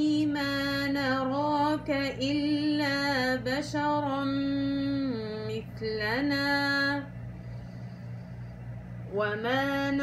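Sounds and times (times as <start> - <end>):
woman chanting: 0.0 - 7.2, 9.0 - 10.0
steady low hum: 0.0 - 10.0.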